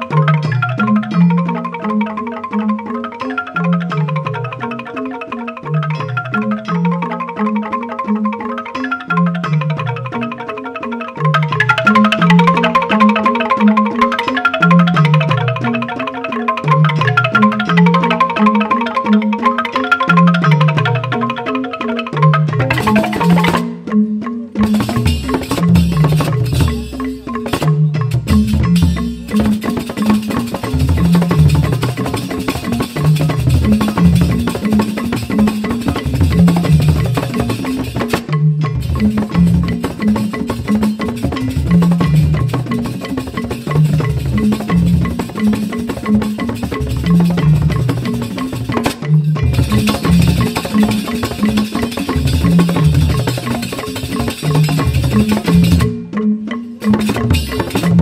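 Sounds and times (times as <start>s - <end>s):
bamboo xylophones: 0.0s - 58.0s
drums: 22.2s - 23.9s, 24.5s - 56.2s, 56.8s - 58.0s.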